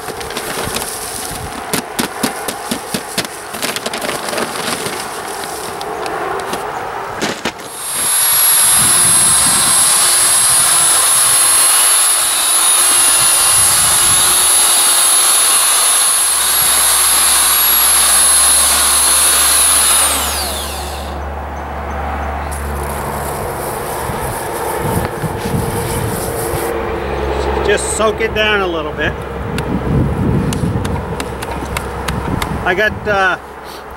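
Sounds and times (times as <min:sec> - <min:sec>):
electric drill motor whine: 0:07.6 - 0:21.3.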